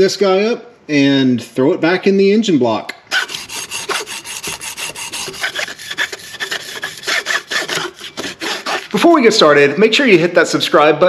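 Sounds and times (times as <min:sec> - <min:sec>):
cloth rubbing on metal shaft: 0:03.2 - 0:09.5.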